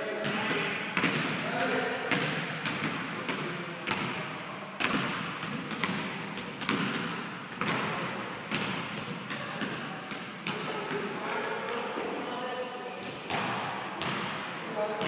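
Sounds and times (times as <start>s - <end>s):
basketball bouncing on wooden floor: 0.2s - 1.4s, 2.1s - 4.2s, 4.8s - 11.1s.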